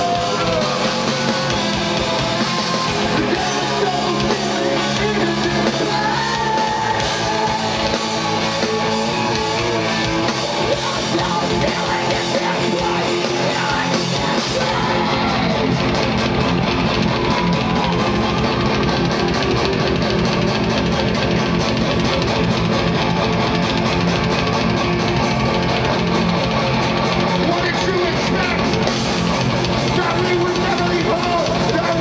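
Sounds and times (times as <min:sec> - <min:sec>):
bass guitar: 0:00.0 - 0:32.0
distorted electric guitars: 0:00.0 - 0:32.0
drums: 0:00.0 - 0:32.0.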